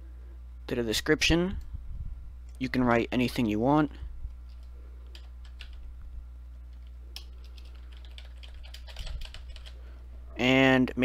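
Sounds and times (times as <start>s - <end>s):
low electrical hum: 0.0s - 11.0s
computer keyboard typing: 4.5s - 5.8s, 6.7s - 9.8s.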